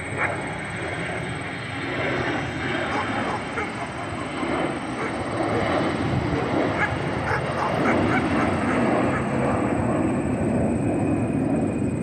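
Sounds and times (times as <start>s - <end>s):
airliner engine noise: 0.0s - 12.0s.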